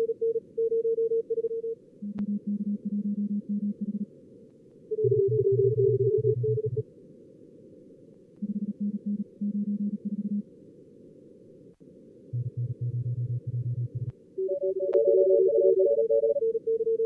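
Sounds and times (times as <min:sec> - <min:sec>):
higher-pitched morse stations: 0:14.4 - 0:16.6
fast morse code tones: 0:14.4 - 0:17.0.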